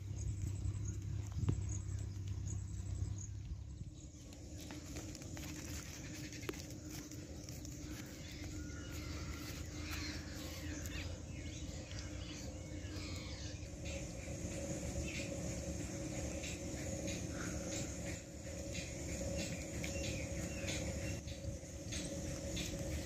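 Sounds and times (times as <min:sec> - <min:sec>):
steady low hum: 0:00.0 - 0:23.0
footsteps on dry soil and grass: 0:04.0 - 0:12.4, 0:16.4 - 0:23.0.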